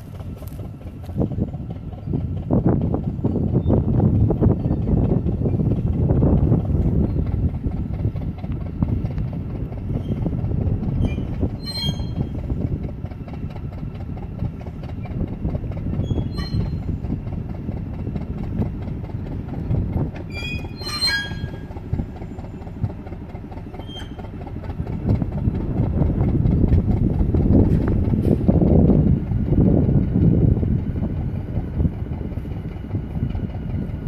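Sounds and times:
locomotive rumbling along track: 0:00.0 - 0:34.0
wheels squealing on rails: 0:00.0 - 0:34.0.

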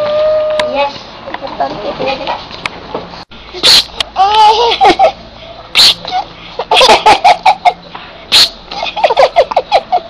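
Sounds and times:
baby giggling and laughing: 0:03.6 - 0:05.2.

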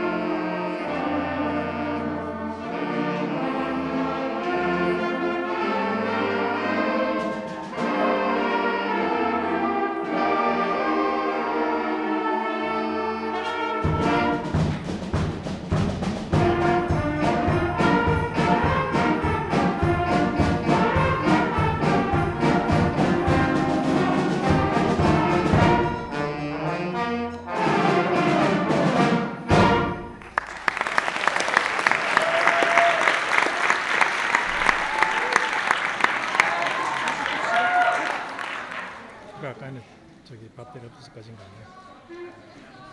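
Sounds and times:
concert band playing: 0:00.0 - 0:38.4
drum beat: 0:13.8 - 0:26.1
audience applause: 0:30.2 - 0:39.5.

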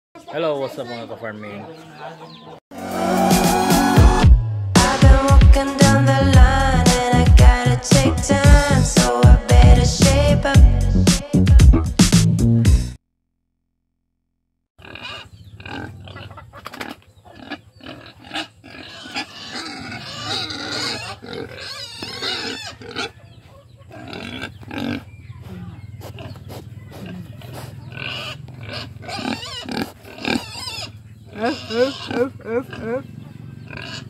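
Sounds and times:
pigs grunting: 0:14.8 - 0:34.0.

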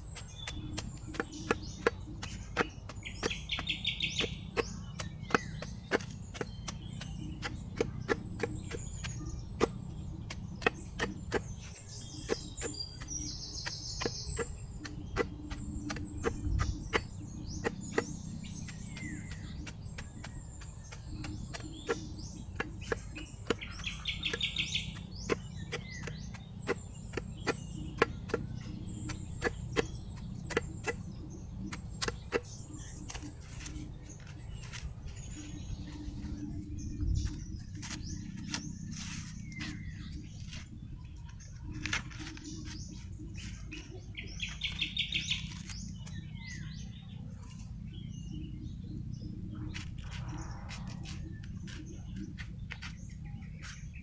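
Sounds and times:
knife chopping plant: 0:00.0 - 0:40.6
bird chirping: 0:00.0 - 0:54.0
low rumble: 0:00.0 - 0:54.0.

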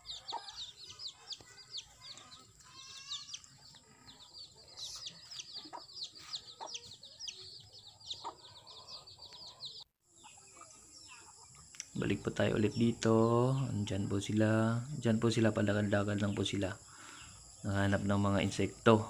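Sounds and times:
hen clucking: 0:00.0 - 0:14.6
chicks peeping: 0:00.0 - 0:19.0.

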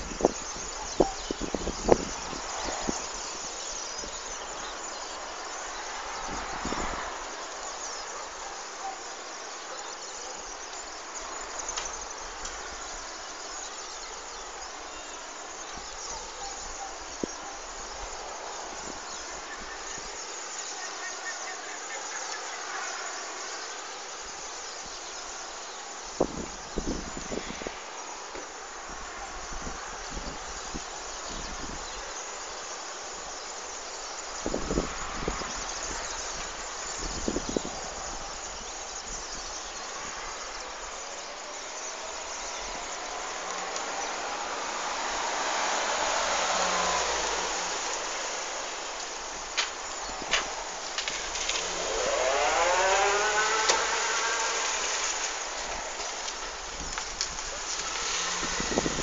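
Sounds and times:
vehicle interior travel hiss: 0:17.2 - 0:59.0
car driving past: 0:42.2 - 0:57.0, 0:57.6 - 0:59.0.

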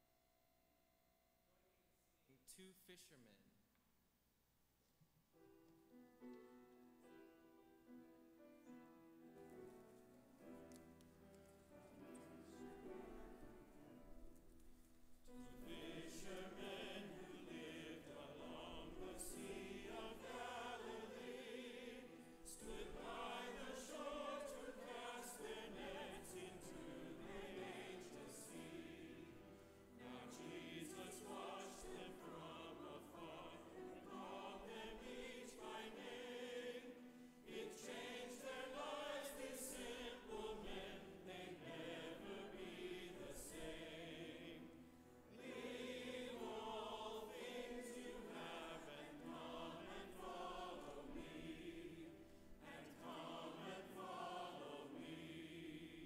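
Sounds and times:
congregation singing a hymn: 0:11.4 - 0:14.5, 0:15.1 - 0:56.0.

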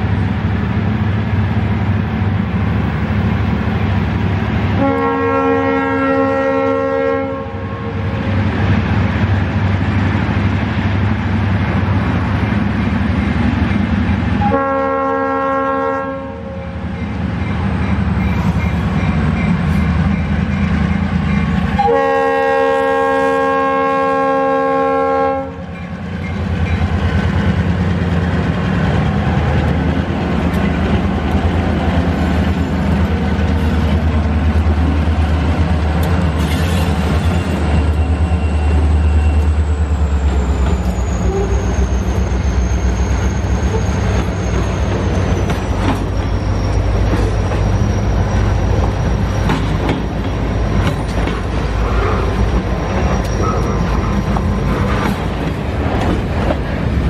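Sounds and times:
locomotive horn blasts: 0:04.8 - 0:08.1, 0:14.4 - 0:16.8, 0:21.8 - 0:25.7
train wheels clattering on rails: 0:08.2 - 0:14.6, 0:16.9 - 0:22.1, 0:25.6 - 0:57.0
locomotive engine rumble: 0:16.7 - 0:57.0.

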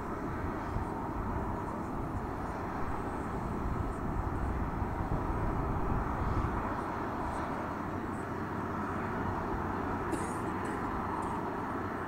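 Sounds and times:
jet engines low rumble: 0:00.0 - 0:12.0.

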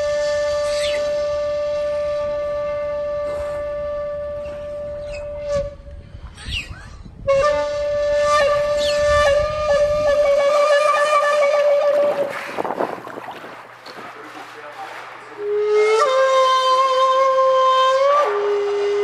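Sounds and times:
whale whistle: 0:00.0 - 0:12.3
whale chirps and squeals: 0:06.3 - 0:07.1.

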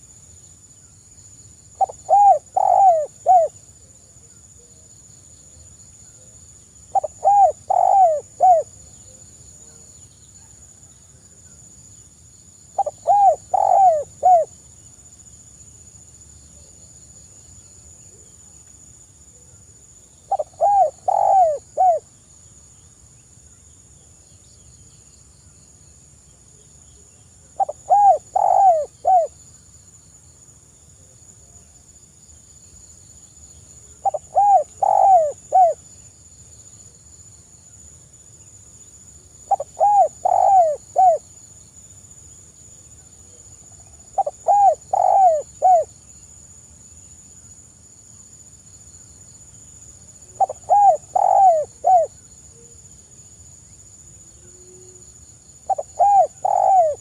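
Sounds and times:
dove cooing: 0:01.8 - 0:03.6, 0:06.9 - 0:08.8, 0:12.8 - 0:14.5, 0:20.3 - 0:22.0, 0:27.6 - 0:29.4, 0:34.0 - 0:35.8, 0:39.5 - 0:41.2, 0:44.2 - 0:45.9, 0:50.4 - 0:52.1, 0:55.7 - 0:57.0.

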